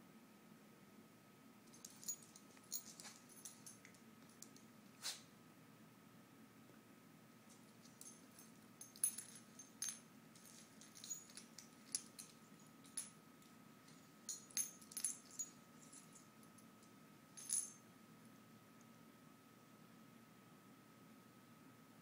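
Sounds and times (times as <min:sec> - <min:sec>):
metal collar tags jingling: 0:01.7 - 0:04.7, 0:07.5 - 0:17.8.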